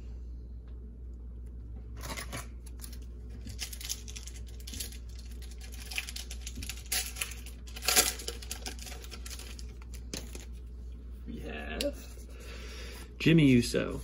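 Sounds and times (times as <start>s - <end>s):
low steady hum: 0.0s - 14.0s
trading cards and wrapper rustling: 2.0s - 10.7s.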